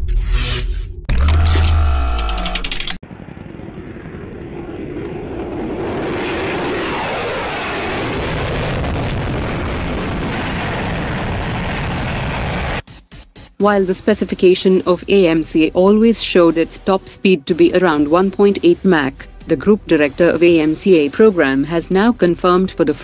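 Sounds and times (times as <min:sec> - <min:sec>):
fighter jet roaring past: 0:03.0 - 0:12.8.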